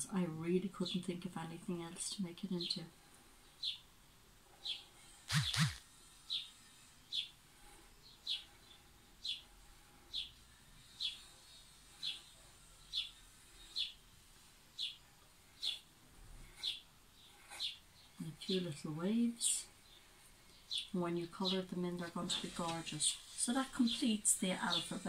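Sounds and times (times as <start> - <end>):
bird chirping: 4.6 - 7.3.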